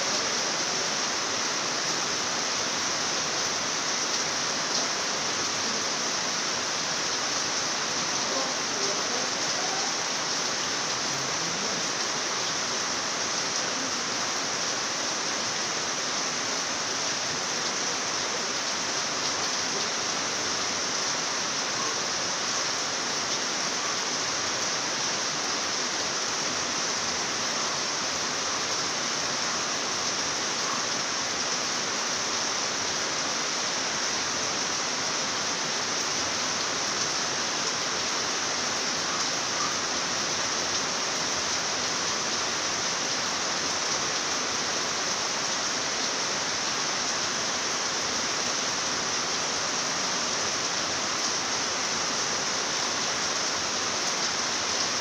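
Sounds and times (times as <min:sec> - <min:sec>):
rain falling steadily: 0:00.0 - 0:55.0.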